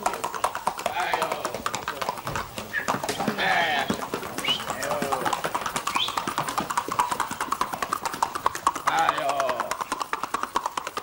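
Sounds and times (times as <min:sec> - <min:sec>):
quick horse hoofbeats: 0:00.0 - 0:11.0
faint voices: 0:00.1 - 0:05.5.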